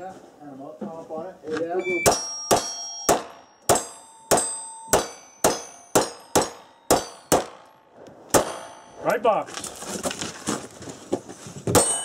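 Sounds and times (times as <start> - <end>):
steel target ringing: 1.8 - 9.3, 11.8 - 12.0
handgun shots: 2.0 - 7.6.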